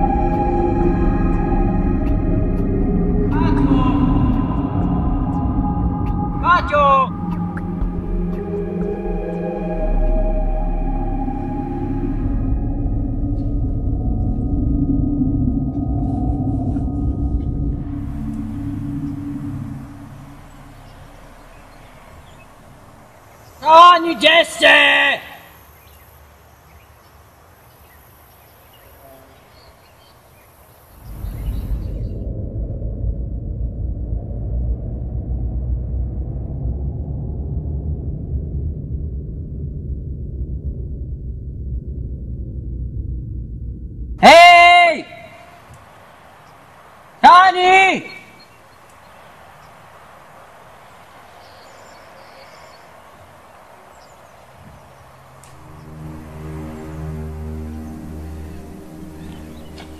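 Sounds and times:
loud low rumble: 0.0s - 23.6s, 31.0s - 44.2s
faint bird chirps: 15.8s - 23.9s, 25.4s - 32.2s, 48.0s - 55.9s
steady background hiss: 17.9s - 31.7s, 44.4s - 59.9s.

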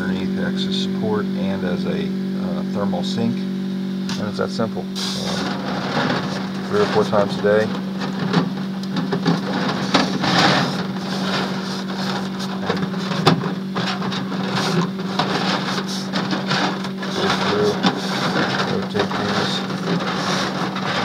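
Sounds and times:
steady low hum: 0.0s - 21.0s
eggshells clicking and scraping on mesh: 5.2s - 21.0s.

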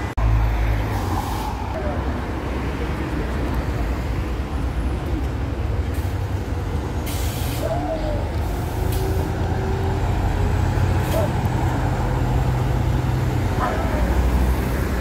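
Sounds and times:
bus diesel engine rumble: 0.0s - 15.0s
air brakes hissing: 7.0s - 9.4s.

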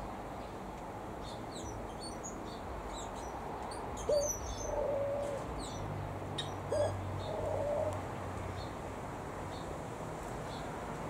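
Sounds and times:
small birds chirping: 1.2s - 8.8s
dove cooing: 4.1s - 5.5s, 6.7s - 8.0s.

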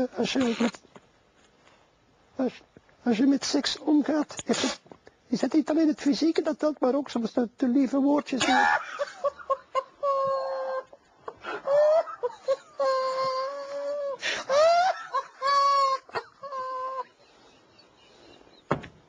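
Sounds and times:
man's stifled laughter: 8.4s - 18.0s.

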